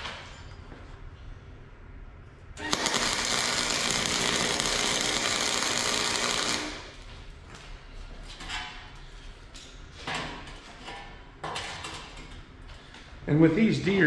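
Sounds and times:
arc welder crackling: 2.6 - 7.1.

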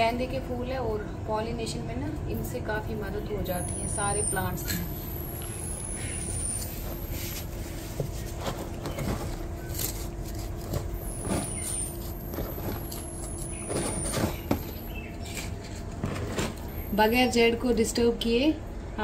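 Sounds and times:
traffic rumble: 0.0 - 19.0
soil and pots rustling: 3.4 - 17.2.

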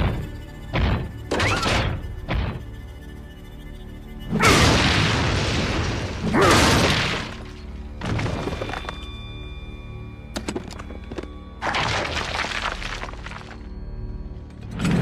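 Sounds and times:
background score music: 0.0 - 15.0.

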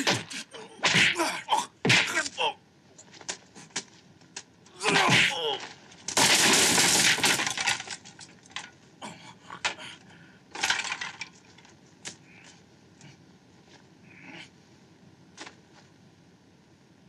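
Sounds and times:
loud crash of things breaking: 4.8 - 8.3
pieces clattering down: 5.6 - 8.8, 10.5 - 11.7.

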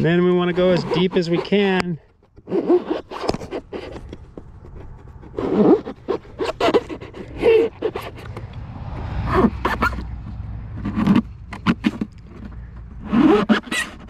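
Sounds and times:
knife sawing into foam: 0.0 - 8.4, 13.0 - 14.0.

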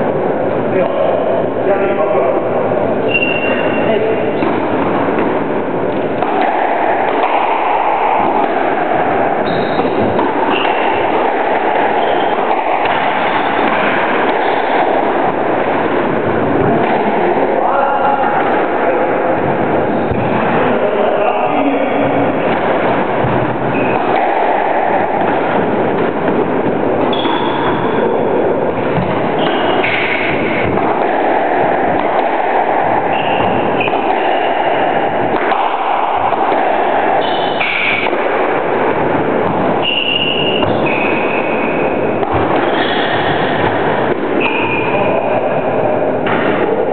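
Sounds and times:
loud rushing noise: 0.0 - 46.9
steady loud noise: 0.0 - 46.9
shoes squeaking on wooden floor: 3.0 - 3.9, 9.4 - 11.2, 11.8 - 14.6, 27.0 - 28.3.

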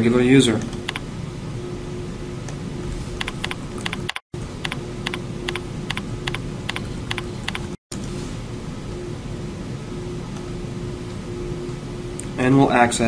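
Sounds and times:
typing on computer keyboard: 3.2 - 7.8.

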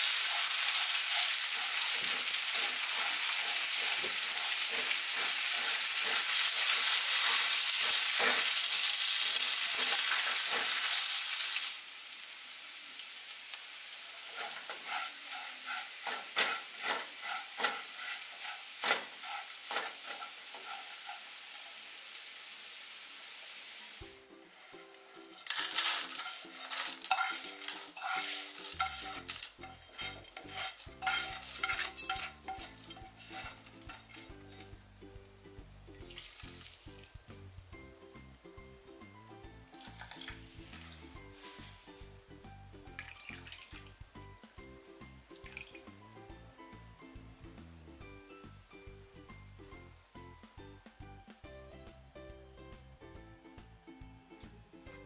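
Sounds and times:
soft music: 0.0 - 11.2, 14.0 - 21.7, 24.0 - 55.0
spatula scraping a pan: 0.0 - 11.6, 14.1 - 21.9, 24.5 - 34.8, 40.3 - 42.0
rice sizzling in hot oil: 0.0 - 50.3
rice grains clicking: 25.4 - 29.6.

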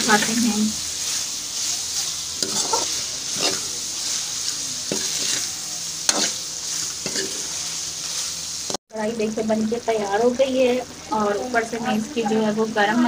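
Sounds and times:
meat sizzling in a pan: 0.0 - 13.0
spoon scraping and knocking pan: 1.0 - 8.4.

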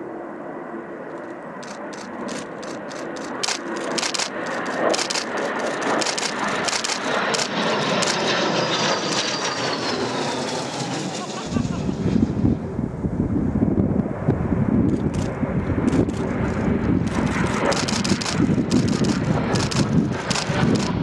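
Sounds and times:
jet engine flying low past: 0.0 - 21.0
sharp clicks: 1.1 - 8.3, 14.9 - 16.3, 17.0 - 21.0.

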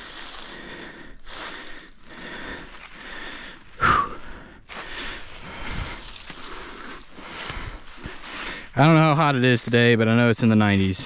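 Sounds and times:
heavy breathing: 0.0 - 9.2.

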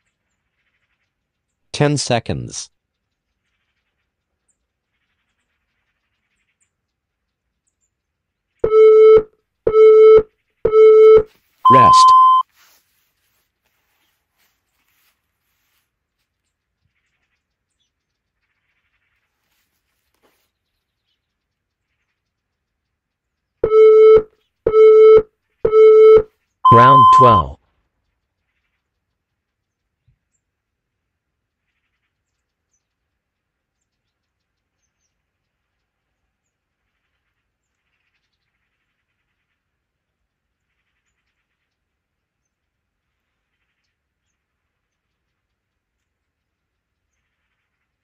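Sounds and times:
timer countdown beeps: 8.6 - 12.4, 23.6 - 27.6.

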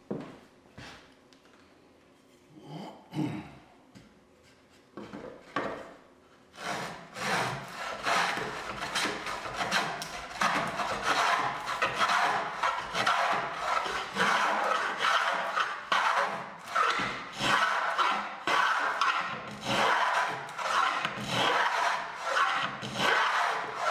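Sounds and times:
plane rasping through wood: 6.5 - 23.9.

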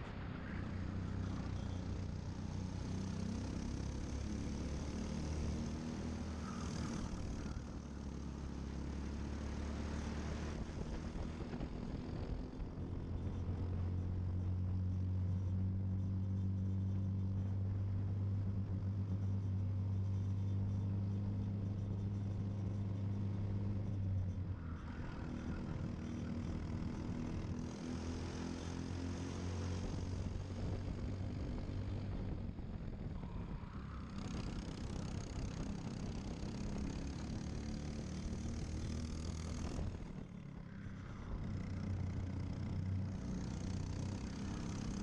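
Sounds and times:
kart engine running: 0.6 - 14.3, 33.8 - 40.3, 41.2 - 45.0.

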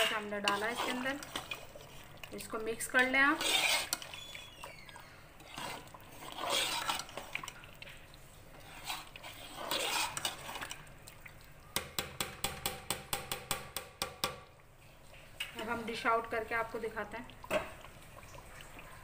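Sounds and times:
ladle stirring thick curry: 0.0 - 13.8.

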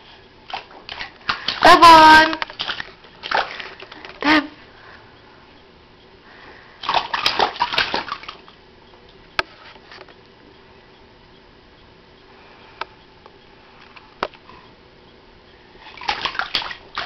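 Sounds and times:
baby splashing water: 0.5 - 4.3, 6.8 - 8.5, 15.9 - 17.0.

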